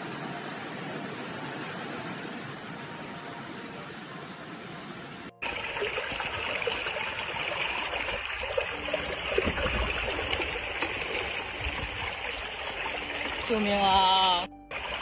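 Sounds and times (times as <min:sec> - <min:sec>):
floodwater rushing: 0:05.4 - 0:15.0.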